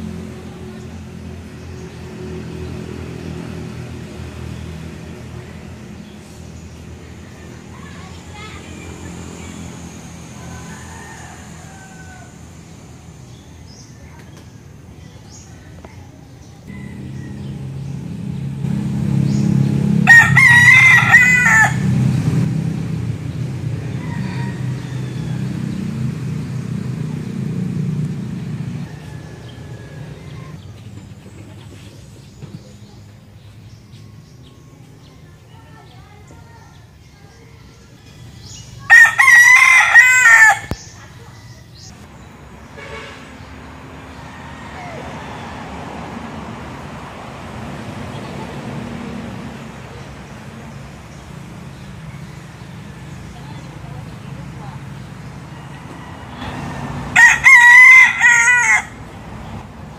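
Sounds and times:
rooster crowing: 0:10.3 - 0:12.6, 0:16.7 - 0:18.0, 0:20.0 - 0:21.9, 0:23.7 - 0:25.8, 0:28.7 - 0:30.5, 0:38.8 - 0:40.8, 0:44.1 - 0:45.7, 0:55.5 - 0:59.1
low steady rumble: 0:16.7 - 0:21.1.

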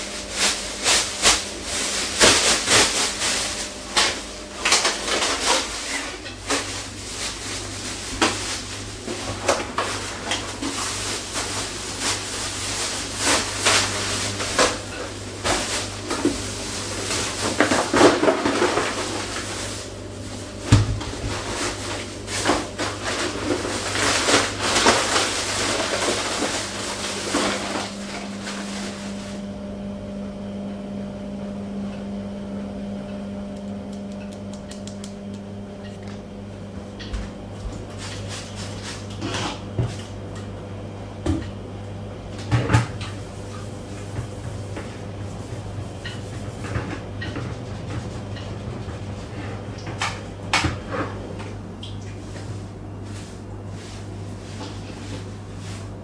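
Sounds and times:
plastic bags rustling: 0:00.0 - 0:29.5
steady low hum: 0:00.0 - 0:56.0.

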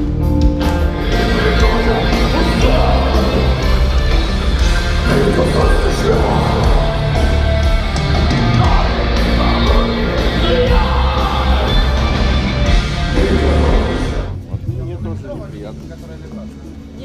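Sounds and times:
heavy metal band playing live: 0:00.0 - 0:15.3
yelled vocals: 0:00.9 - 0:14.3.

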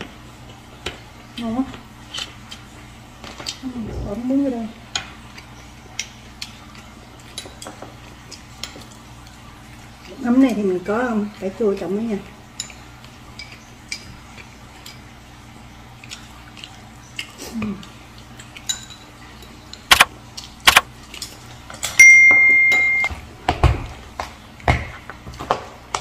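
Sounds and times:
sharp clicks: 0:20.7 - 0:20.9
small clicks: 0:20.7 - 0:20.9
chopsticks and glassware clinking: 0:21.2 - 0:23.1
bell-like ding: 0:22.0 - 0:23.1.

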